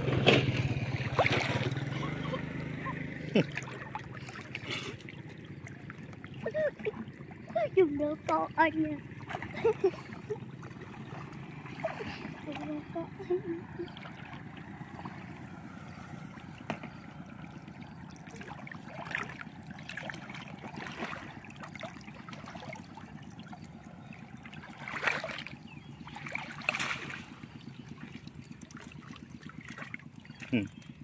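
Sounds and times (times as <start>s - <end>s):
water sloshing around people wading: 0.0s - 31.0s
water splashes: 0.0s - 31.0s.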